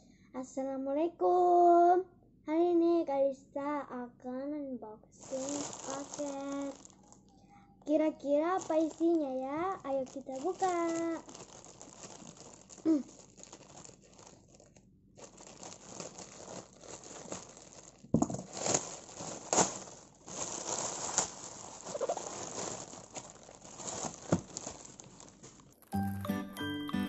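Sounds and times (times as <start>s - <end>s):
plastic packaging crinkling: 5.2s - 7.4s, 8.2s - 26.2s.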